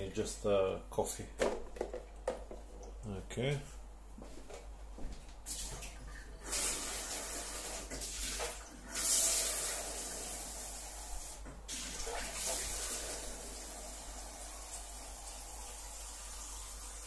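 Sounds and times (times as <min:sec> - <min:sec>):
water running from a tap: 0:05.5 - 0:17.0.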